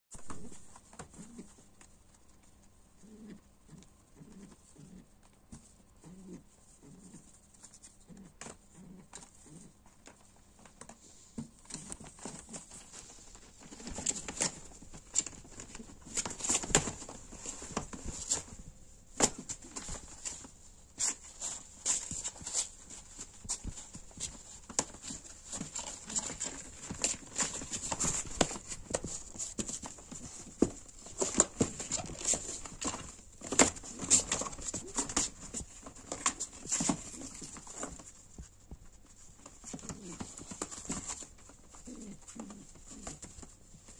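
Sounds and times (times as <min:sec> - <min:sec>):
claws and beaks knocking cardboard: 0:10.1 - 0:43.8.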